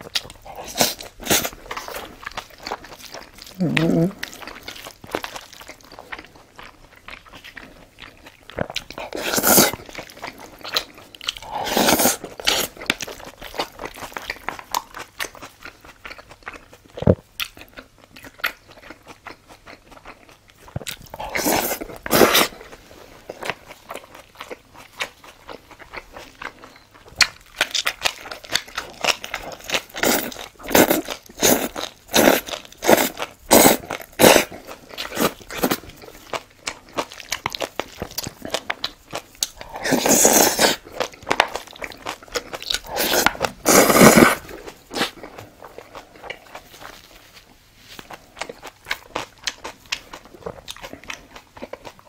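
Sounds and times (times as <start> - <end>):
crunchy chewing: 0.0 - 52.0
slurping noodles: 9.0 - 9.8, 11.4 - 12.7, 21.2 - 22.7, 39.6 - 40.8, 42.8 - 45.2.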